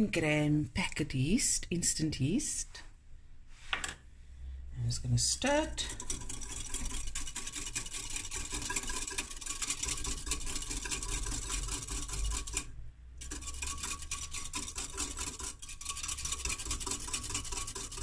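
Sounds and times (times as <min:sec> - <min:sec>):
whisk clicking against glass: 0:05.8 - 0:18.0.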